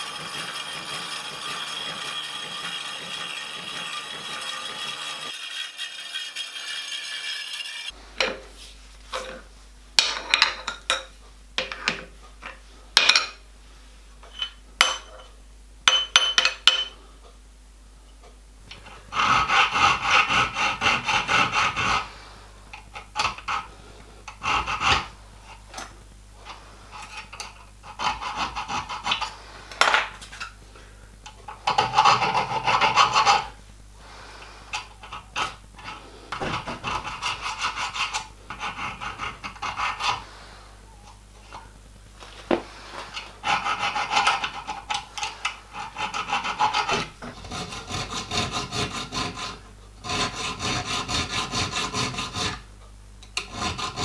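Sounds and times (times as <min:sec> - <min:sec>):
milling machine cutting metal: 0:00.0 - 0:07.9
hand file rasping: 0:00.0 - 0:08.0, 0:18.8 - 0:22.2, 0:22.8 - 0:25.7, 0:26.5 - 0:29.8, 0:31.6 - 0:33.6, 0:34.4 - 0:40.4, 0:42.9 - 0:52.6, 0:53.4 - 0:54.0.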